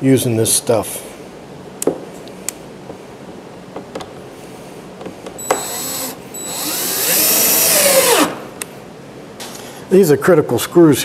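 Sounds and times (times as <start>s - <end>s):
cordless drill driving screw: 5.4s - 8.4s.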